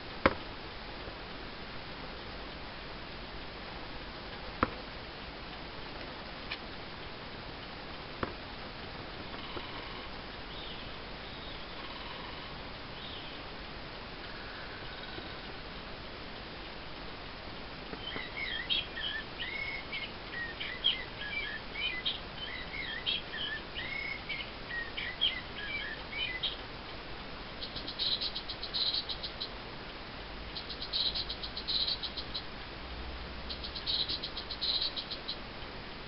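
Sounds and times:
recorded songbird calls: 9.3s - 13.5s, 14.1s - 15.7s, 17.6s - 29.6s, 30.4s - 35.6s.

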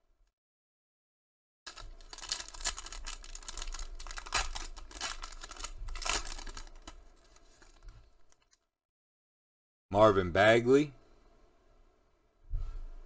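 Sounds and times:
card pack wrapper crinkling and tearing: 1.7s - 8.6s.

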